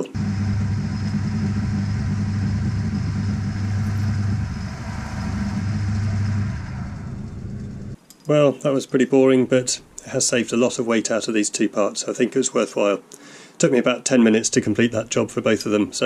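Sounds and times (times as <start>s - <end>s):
drill cutting hiss: 0.0s - 7.2s
lathe motor hum: 0.0s - 8.0s, 14.4s - 15.7s
quiet whir: 0.0s - 8.0s, 9.4s - 10.8s, 14.4s - 16.0s.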